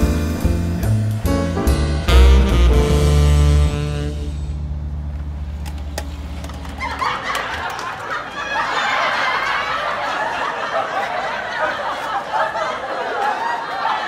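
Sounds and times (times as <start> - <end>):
low held note: 0.5 - 5.1
group of people laughing: 6.6 - 14.0.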